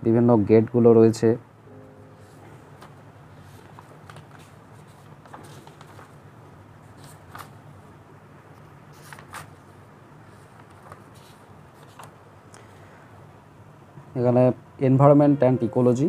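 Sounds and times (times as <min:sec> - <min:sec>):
faint steady hum: 0:00.0 - 0:16.0
book pages rustling: 0:02.2 - 0:07.7, 0:08.6 - 0:12.2.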